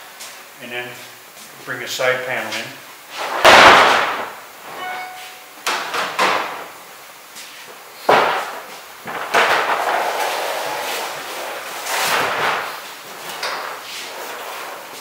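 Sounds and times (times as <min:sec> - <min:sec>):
plastic panel banging and knocking: 0:05.7 - 0:06.6, 0:08.1 - 0:10.0.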